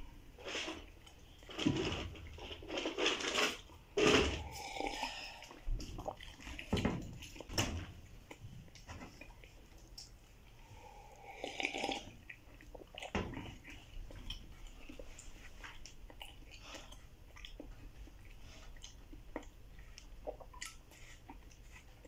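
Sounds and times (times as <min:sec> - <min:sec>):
slurping sip of hot coffee: 0:04.0 - 0:05.6, 0:10.7 - 0:12.2
chewing bread with wet clicks: 0:04.6 - 0:22.0.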